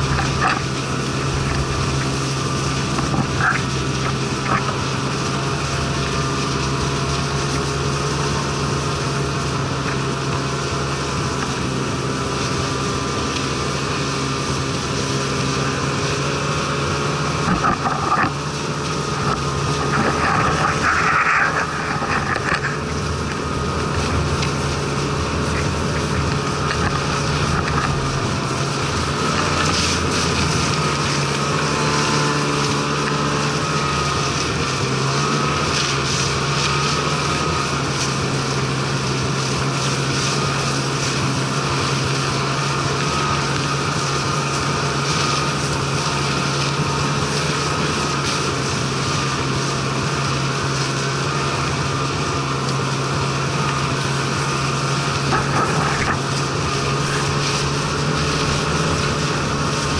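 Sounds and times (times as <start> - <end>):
snowmobile engine running: 0.0 - 59.9.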